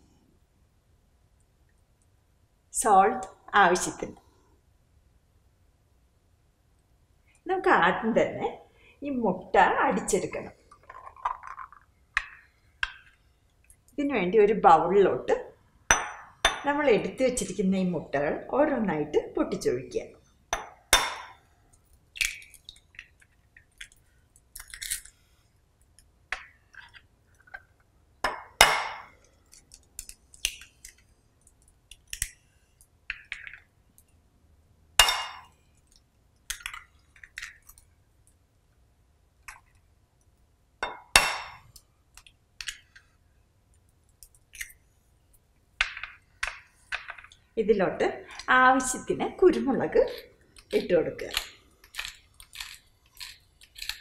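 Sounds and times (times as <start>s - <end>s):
eggshell crackling: 22.0s - 25.1s, 48.2s - 54.0s.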